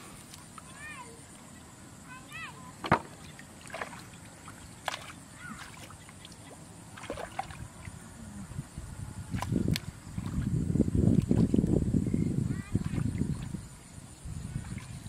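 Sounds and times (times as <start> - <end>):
small splashes and drips: 2.3 - 8.0, 9.3 - 11.8, 12.7 - 15.0
hands sloshing in muddy puddle: 3.1 - 8.0, 9.3 - 11.8, 12.7 - 13.6, 14.4 - 15.0.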